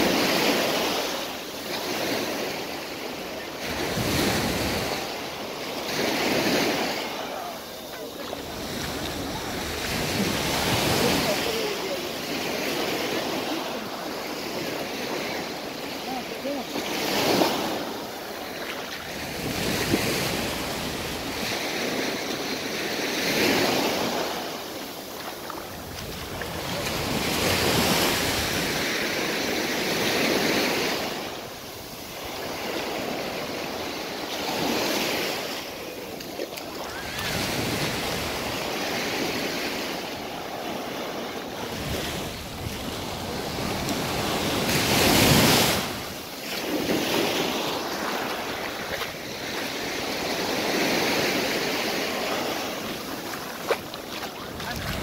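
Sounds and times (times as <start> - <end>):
waves breaking on sandy beach: 0.0 - 55.0.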